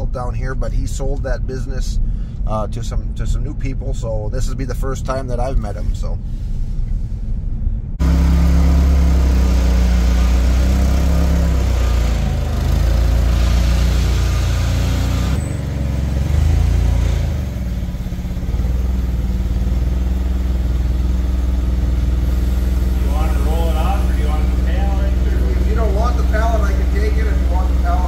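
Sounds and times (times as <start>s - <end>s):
forklift engine revving: 8.0s - 28.0s.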